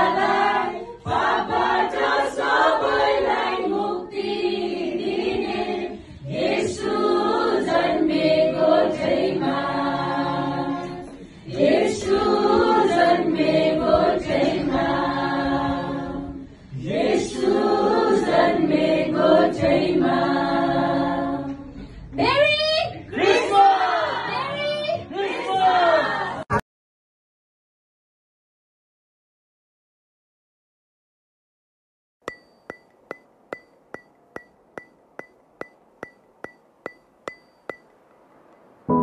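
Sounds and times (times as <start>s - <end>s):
mixed choir singing a carol: 0.0s - 21.8s.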